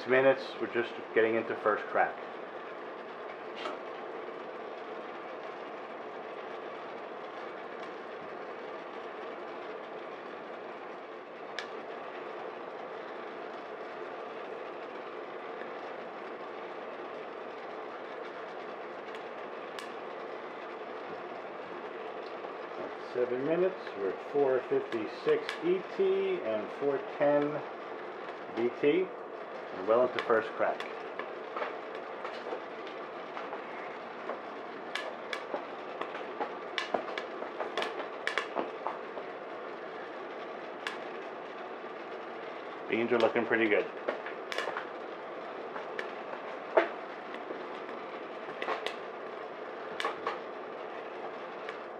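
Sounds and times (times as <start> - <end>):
oven fan noise: 0.0 - 51.9
roaster whirring: 0.0 - 51.9
coffee beans cracking: 42.9 - 45.0.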